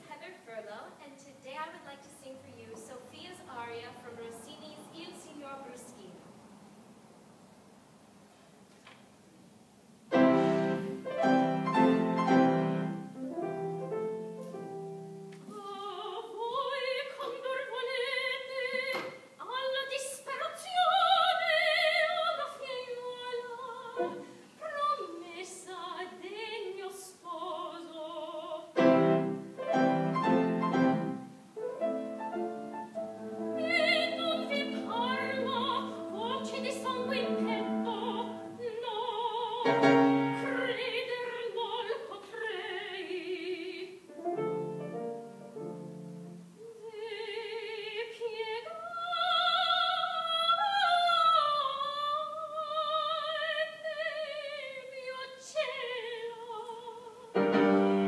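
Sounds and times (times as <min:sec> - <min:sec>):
piano chords: 0:10.1 - 0:15.4, 0:28.7 - 0:41.0, 0:44.0 - 0:46.6, 0:57.3 - 0:58.0
woman singing opera: 0:15.5 - 0:28.8, 0:33.3 - 0:44.1, 0:46.6 - 0:58.0.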